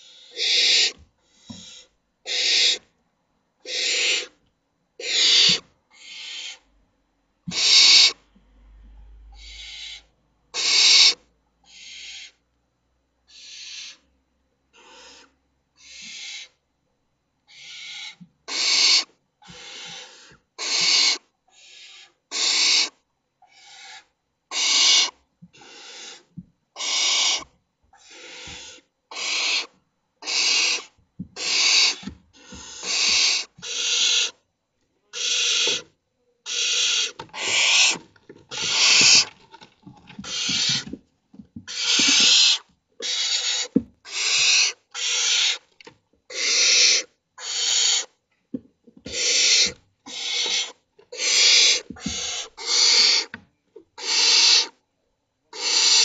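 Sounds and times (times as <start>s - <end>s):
owl chicks hissing begging calls: 0.0s - 2.8s, 3.6s - 4.3s, 5.0s - 6.6s, 7.5s - 8.2s, 9.3s - 12.4s, 13.3s - 14.1s, 14.7s - 16.6s, 17.5s - 34.4s, 35.1s - 39.4s, 40.2s - 40.9s, 41.7s - 45.7s, 46.3s - 48.1s, 49.1s - 53.4s, 54.0s - 54.8s, 55.5s - 56.0s.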